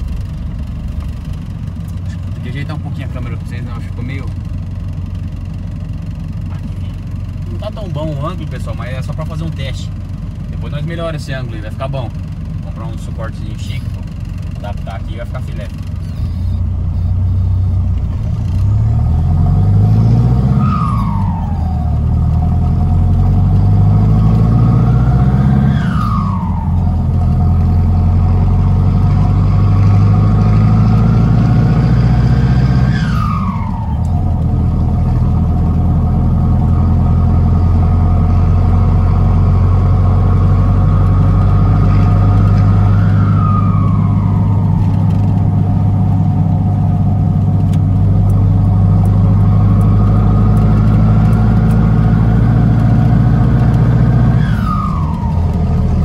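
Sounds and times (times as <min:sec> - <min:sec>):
diesel engine revving: 0:00.0 - 0:56.0
turbo whistle: 0:32.7 - 0:34.2, 0:42.7 - 0:44.9, 0:54.2 - 0:55.8.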